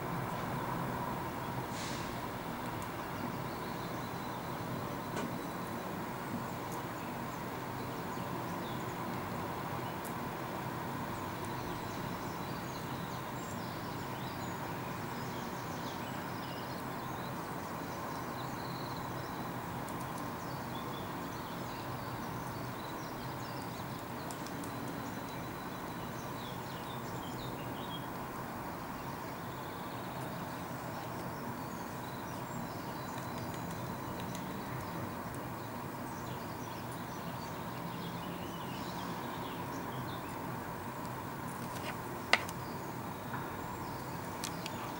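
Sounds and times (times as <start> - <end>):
birds chirping: 28.8 - 44.9.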